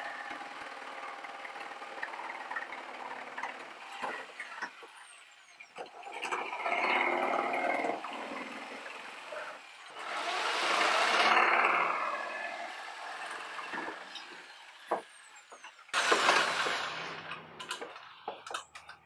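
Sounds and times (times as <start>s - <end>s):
electric jigsaw cutting: 9.9s - 15.1s, 16.0s - 18.0s.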